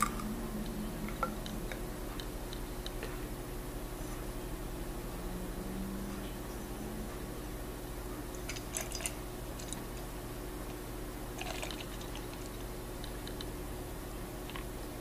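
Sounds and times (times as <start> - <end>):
beer pouring into a glass: 11.4 - 12.3.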